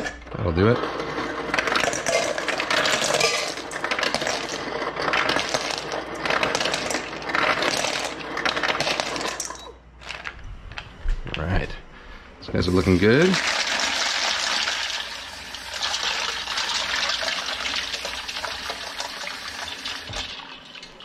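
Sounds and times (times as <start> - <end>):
ice cubes clinking in a bowl: 1.3 - 10.4.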